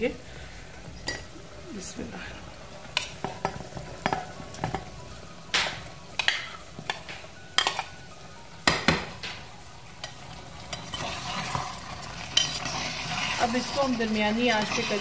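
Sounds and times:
spoon clinking on metal pot: 0:07.6 - 0:07.9, 0:12.3 - 0:12.7.

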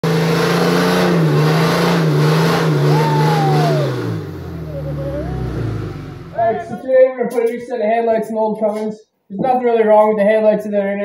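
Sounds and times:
diesel engine revving high: 0:00.0 - 0:06.8.

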